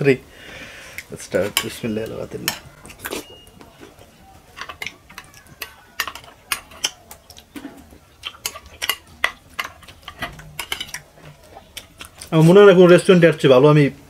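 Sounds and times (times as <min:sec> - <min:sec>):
spoons clicking on ceramic plates: 0:01.4 - 0:07.6, 0:08.2 - 0:11.1.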